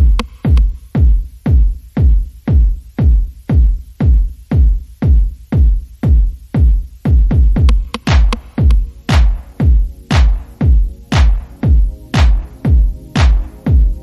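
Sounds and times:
electronic music with heavy kick drum: 0:00.0 - 0:14.0.

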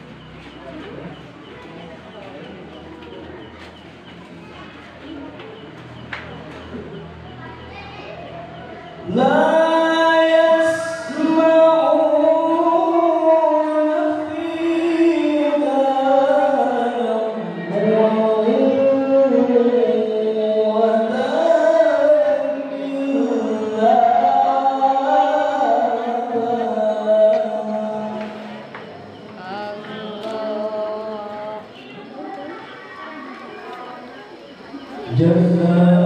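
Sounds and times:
man reciting melodically: 0:08.9 - 0:31.8, 0:35.0 - 0:36.0.

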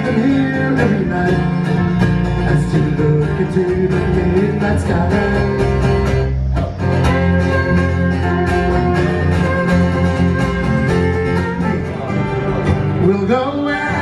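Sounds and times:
electric bass: 0:00.0 - 0:14.0
strummed acoustic guitar: 0:00.0 - 0:14.0
fiddle: 0:07.0 - 0:12.8.

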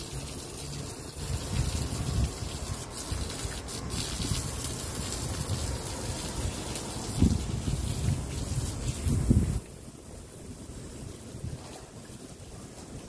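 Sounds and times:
water gushing on brickwork: 0:00.0 - 0:13.0
wind rumbling on microphone: 0:00.2 - 0:13.0.

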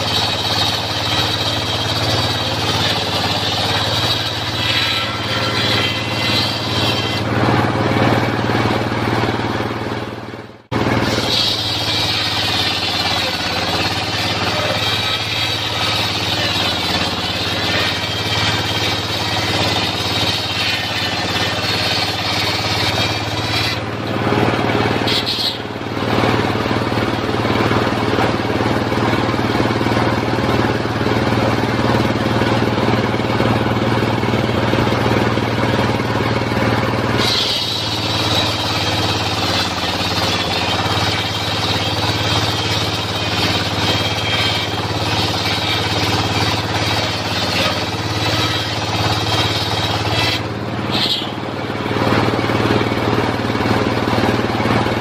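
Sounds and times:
saw blade ripping through log: 0:00.0 - 0:07.4, 0:10.8 - 0:25.7, 0:37.2 - 0:51.4
saw blade whining: 0:00.0 - 0:55.0
sawmill engine running: 0:00.0 - 0:55.0.

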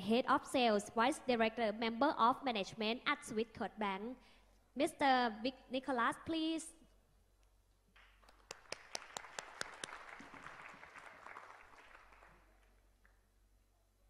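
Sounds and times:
audience applauding: 0:08.0 - 0:13.2.

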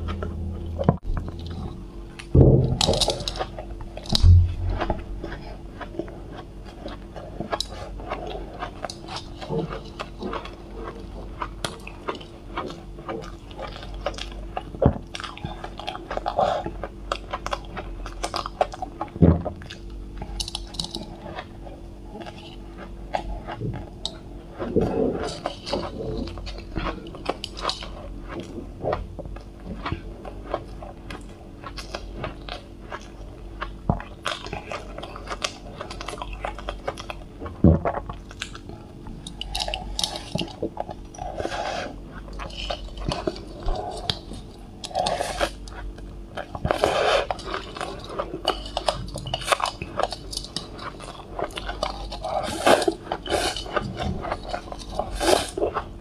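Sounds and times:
chewing and crunching ice: 0:00.0 - 0:56.0
sharp knock: 0:04.2 - 0:04.9.

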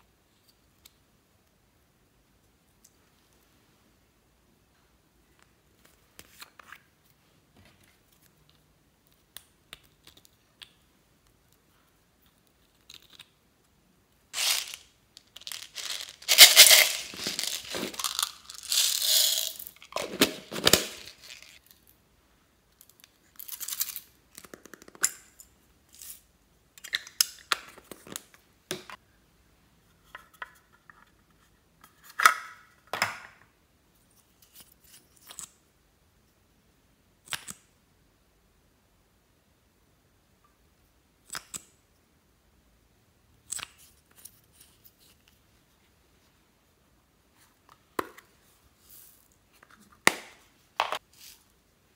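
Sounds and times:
beads rattling onto slime: 0:14.4 - 0:21.6.

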